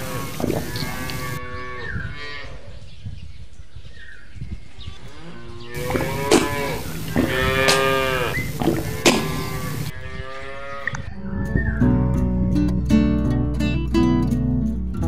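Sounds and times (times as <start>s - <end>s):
cattle mooing: 0.0s - 2.5s, 5.2s - 11.0s.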